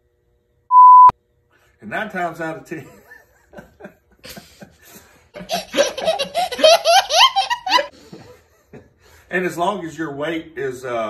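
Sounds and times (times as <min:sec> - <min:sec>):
man laughing: 0:02.8 - 0:09.0.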